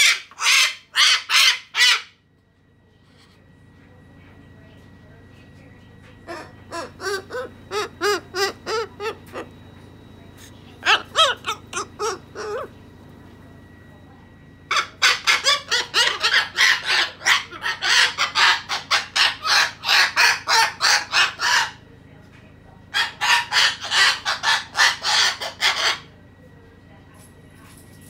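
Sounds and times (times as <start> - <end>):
cockatoo harsh squawks: 0.0 - 2.2, 6.3 - 9.5, 10.8 - 12.7, 14.7 - 21.8, 22.9 - 26.1.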